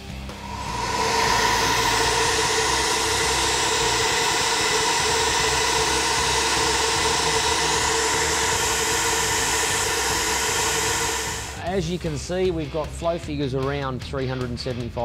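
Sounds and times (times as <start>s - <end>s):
constant motor whine: 0.0s - 11.8s
rush of air: 0.0s - 11.8s.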